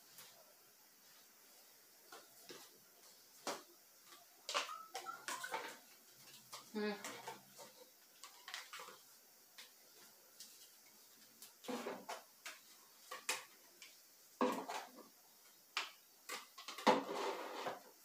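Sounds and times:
plastic bottles clicking and knocking: 0:04.5 - 0:05.8, 0:15.8 - 0:17.2.

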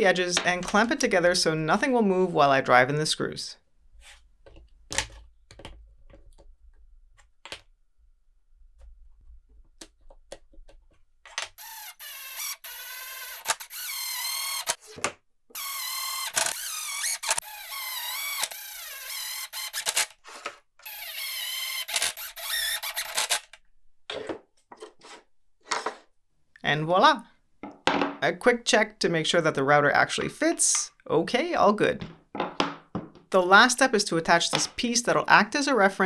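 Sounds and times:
clamps and wood clicking: 0:11.3 - 0:14.8
impact driver whining: 0:11.5 - 0:14.8, 0:15.6 - 0:20.1, 0:20.8 - 0:23.6.

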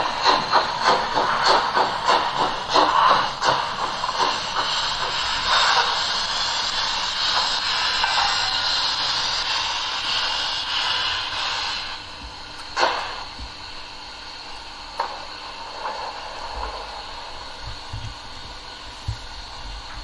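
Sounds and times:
model locomotive running: 0:00.0 - 0:12.2
steam hiss from small speaker: 0:00.0 - 0:20.0.

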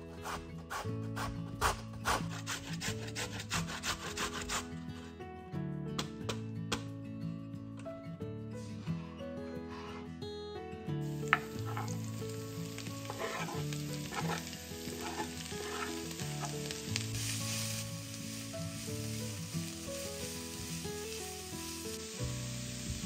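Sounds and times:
food sizzling in a pan: 0:11.0 - 0:23.0
utensil scraping pan: 0:11.3 - 0:12.1, 0:13.0 - 0:16.7.

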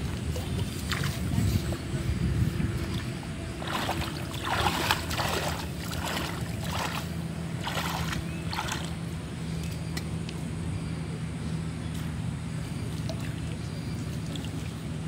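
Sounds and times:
hands splashing in muddy water: 0:02.8 - 0:09.0.

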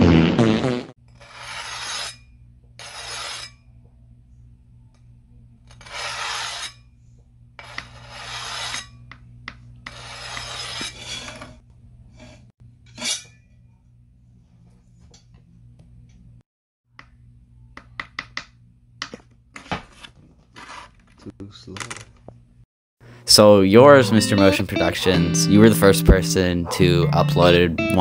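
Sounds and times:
blade scraping strokes: 0:01.2 - 0:02.2, 0:02.8 - 0:03.6, 0:05.7 - 0:06.8, 0:07.6 - 0:09.0, 0:09.9 - 0:13.3
steady low hum: 0:02.1 - 0:06.0.

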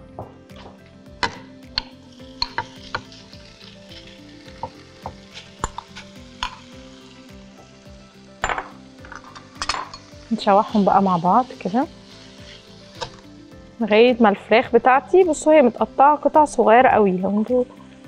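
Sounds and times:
onion sizzling in a pan: 0:00.0 - 0:18.0
spoon knocking against pan: 0:01.2 - 0:02.7.

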